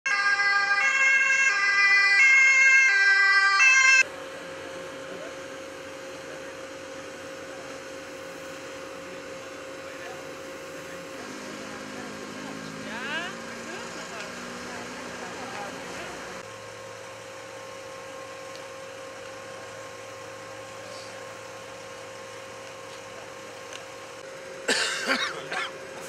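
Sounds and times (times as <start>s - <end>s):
two-tone emergency siren: 0.0s - 4.1s.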